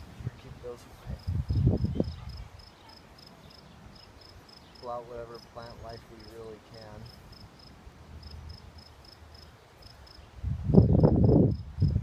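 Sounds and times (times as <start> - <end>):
insect chirping: 1.2 - 6.4, 7.0 - 12.0.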